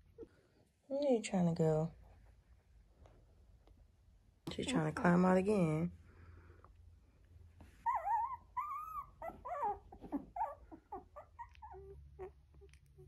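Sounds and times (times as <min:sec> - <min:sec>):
puppies whining: 0:07.8 - 0:13.0.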